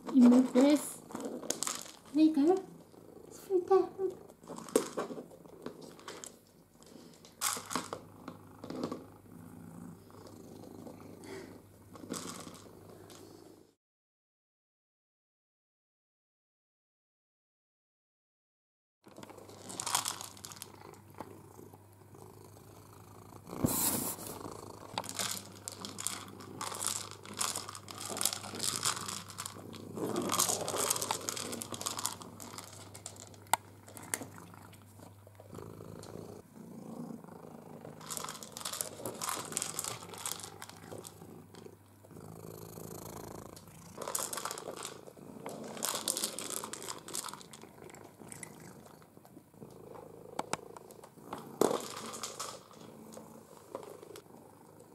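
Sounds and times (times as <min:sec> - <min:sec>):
plastic ball rattling on wooden floor: 0:00.0 - 0:02.7, 0:04.2 - 0:09.1, 0:11.9 - 0:13.2, 0:19.1 - 0:21.3, 0:24.4 - 0:34.6, 0:37.8 - 0:41.7, 0:42.8 - 0:49.0, 0:50.3 - 0:54.2
cat purring: 0:00.0 - 0:13.8, 0:19.1 - 0:54.9.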